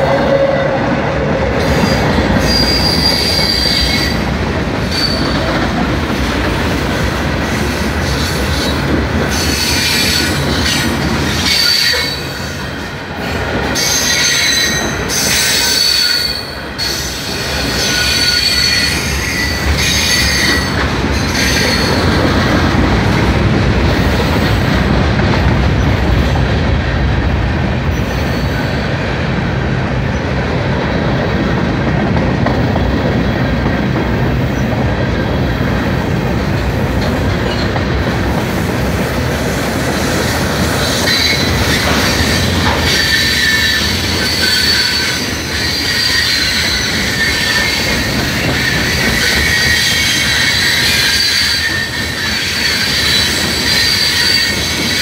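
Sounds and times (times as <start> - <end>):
freight train wheels rumbling: 0.0 - 55.0
high wheel squeal: 1.6 - 4.2, 4.9 - 5.5, 9.3 - 12.6, 13.8 - 22.2, 40.6 - 55.0.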